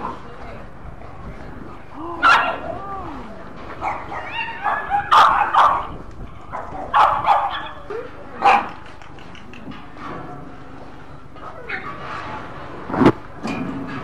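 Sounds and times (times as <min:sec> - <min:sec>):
dog barking: 0:03.8 - 0:05.9, 0:06.5 - 0:07.8, 0:08.4 - 0:08.7.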